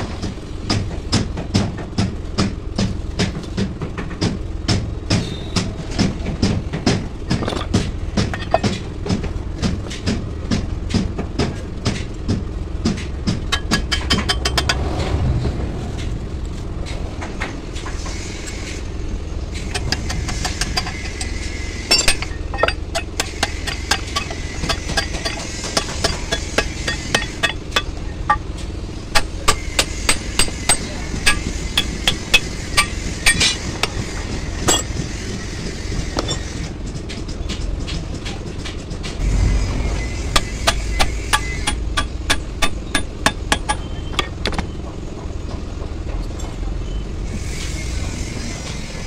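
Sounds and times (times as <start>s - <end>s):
hammer striking steel: 19.7s - 28.5s, 29.1s - 35.0s, 40.3s - 44.4s.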